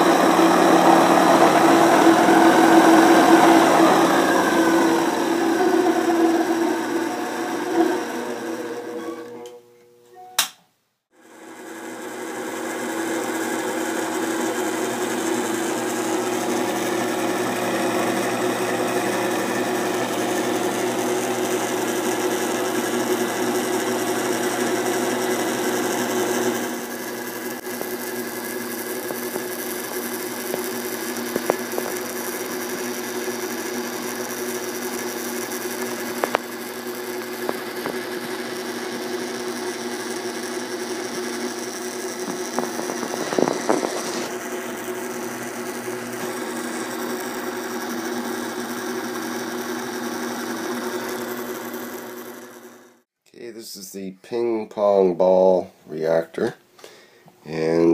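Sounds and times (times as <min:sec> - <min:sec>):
motor whirring hum with whine: 0:26.7 - 0:53.0.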